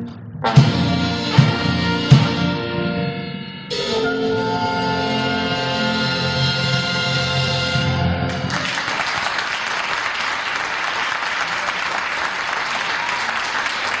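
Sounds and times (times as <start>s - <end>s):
big band final chord: 0.0s - 8.6s
audience applauding: 8.3s - 14.0s.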